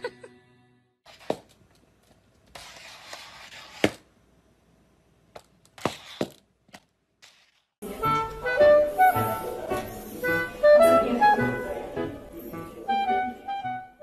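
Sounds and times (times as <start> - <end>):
music: 7.8 - 14.0.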